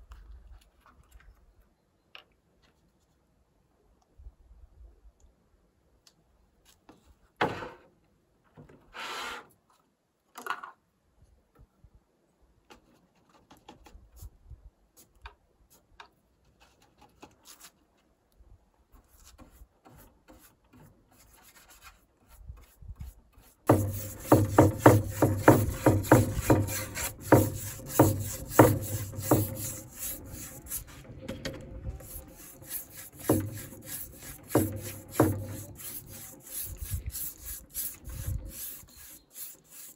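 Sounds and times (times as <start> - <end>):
rasping strokes on wooden boards: 19.2 - 31.1, 31.9 - 39.9.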